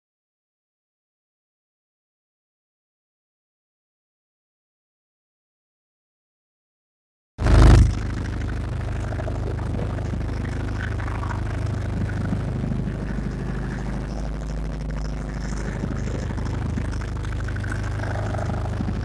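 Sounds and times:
motorboat engine running: 7.4 - 19.0.

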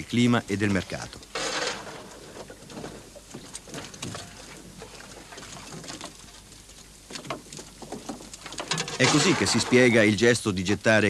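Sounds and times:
shovel scraping wooden boards: 1.3 - 3.1, 8.6 - 9.9
wet fish slapping: 2.1 - 9.6.

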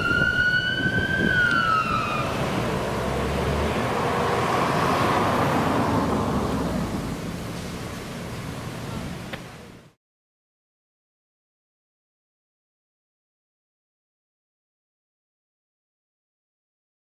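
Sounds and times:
fire engine siren wail: 0.0 - 7.4
engine and road noise: 0.0 - 10.0.

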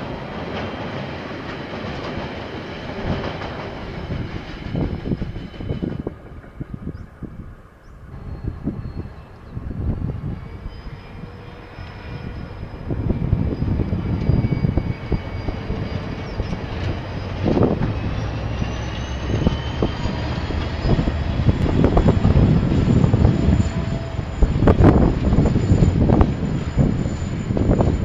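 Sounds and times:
train wheels rumbling: 0.0 - 28.0
high whine rising in pitch: 11.8 - 28.0.

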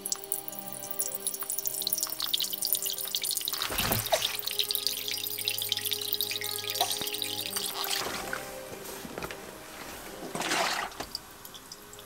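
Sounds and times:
water pouring into a glass pot: 0.0 - 8.6, 10.2 - 12.0
soft music: 0.0 - 12.0.

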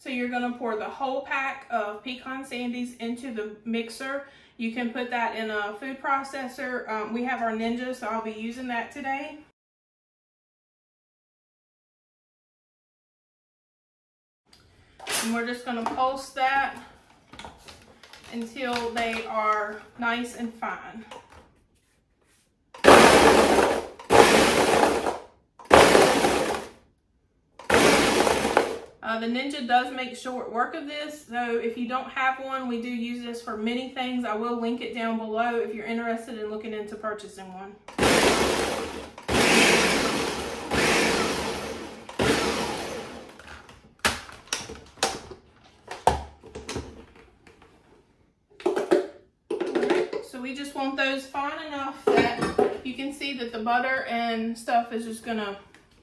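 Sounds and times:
blender crushing cookies: 22.8 - 26.8, 27.6 - 29.0, 37.9 - 44.4.

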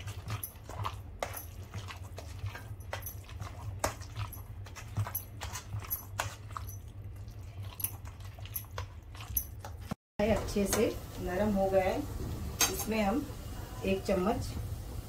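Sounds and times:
mash squelching: 0.0 - 10.0.

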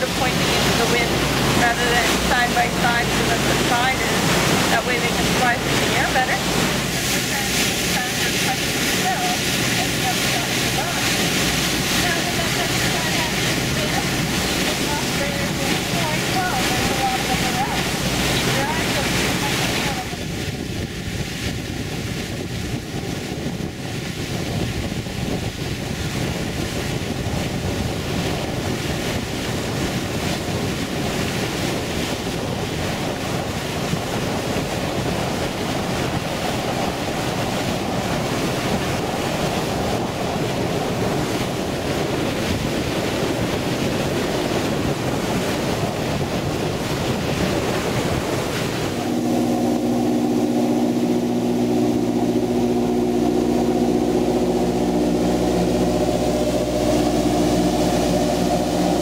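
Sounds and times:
boat engine humming: 0.0 - 59.0
water rushing along boat hull: 0.0 - 59.0
white water churning: 0.0 - 59.0
wind buffeting microphone: 0.0 - 59.0.

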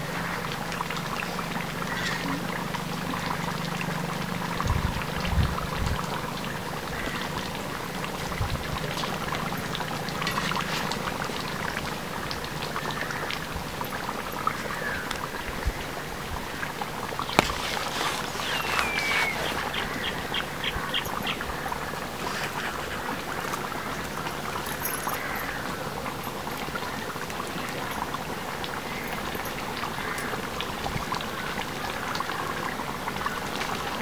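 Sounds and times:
curry bubbling and popping: 0.0 - 34.0
faint bird chirps: 17.2 - 21.6.

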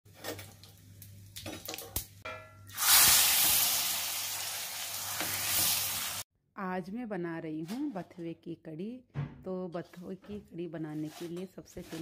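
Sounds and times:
hot oil crackling: 0.1 - 6.2
loud sudden sizzle: 2.7 - 6.2.

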